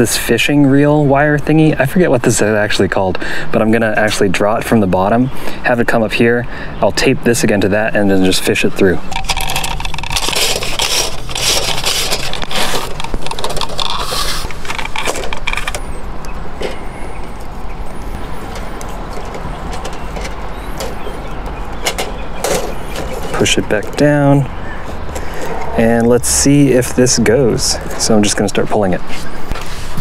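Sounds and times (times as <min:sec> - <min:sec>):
fish tape scraping through conduit: 0:09.1 - 0:15.8.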